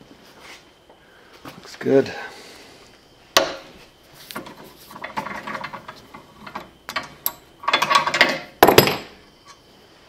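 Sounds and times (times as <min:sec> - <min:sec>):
metal clatter: 0:04.4 - 0:09.1.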